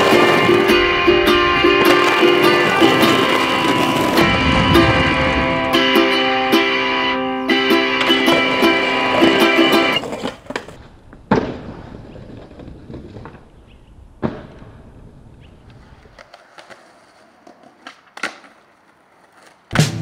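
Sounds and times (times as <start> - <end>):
skateboard clacking on ground: 0.0 - 5.1, 7.8 - 13.7, 15.4 - 20.0
skateboard wheels rolling on pavement: 0.0 - 20.0.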